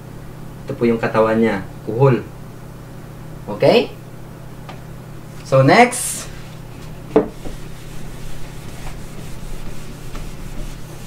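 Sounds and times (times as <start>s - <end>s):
eraser rubbing on whiteboard: 7.2s - 11.0s.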